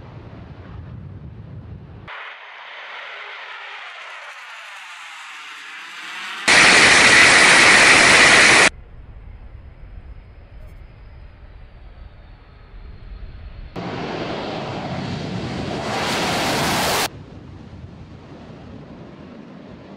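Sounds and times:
jet engines roaring: 0:02.1 - 0:08.7, 0:11.5 - 0:17.4.

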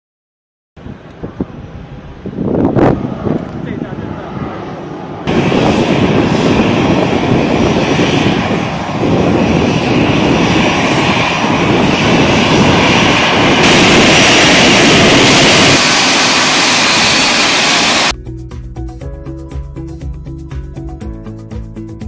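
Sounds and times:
jet engines rushing and whining: 0:00.8 - 0:18.2.

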